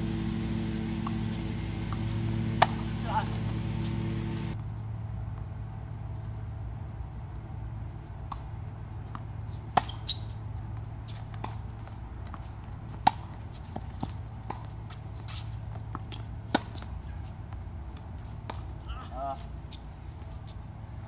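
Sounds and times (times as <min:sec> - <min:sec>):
high whine: 0:00.0 - 0:04.6
low rumble: 0:00.0 - 0:04.6
tennis ball pops: 0:00.3 - 0:04.6.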